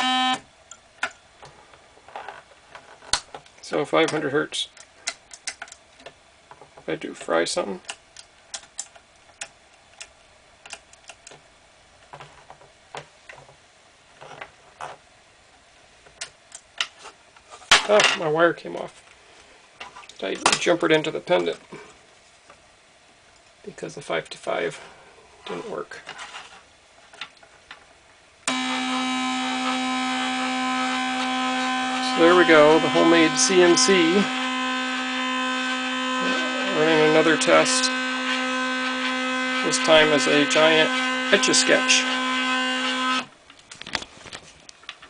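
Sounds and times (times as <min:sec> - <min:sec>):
stepper motors whining: 0:28.5 - 0:43.3.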